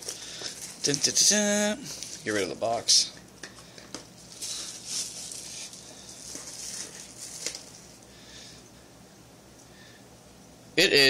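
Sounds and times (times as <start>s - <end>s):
bubble wrap crinkling: 0.0s - 2.5s, 3.8s - 8.1s.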